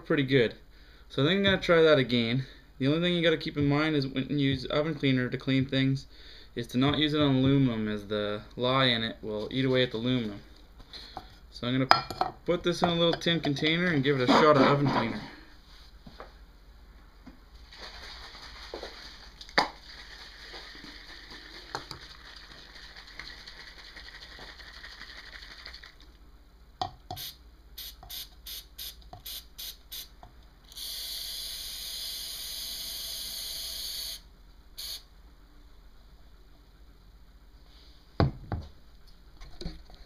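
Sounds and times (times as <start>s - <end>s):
aerosol can spraying: 27.2s - 30.1s.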